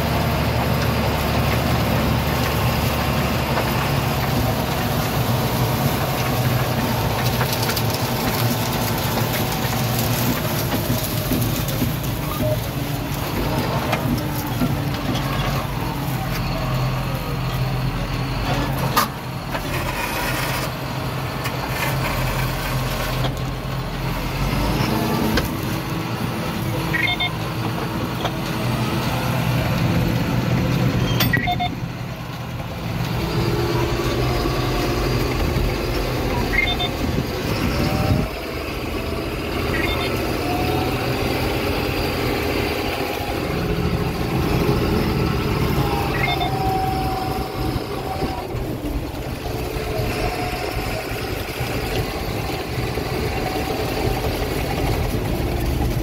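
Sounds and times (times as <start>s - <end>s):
tractor diesel engine under load: 0.0s - 56.0s
short electronic beeps: 26.9s - 27.4s, 31.1s - 31.8s, 36.5s - 37.0s, 39.7s - 40.2s, 46.1s - 46.5s.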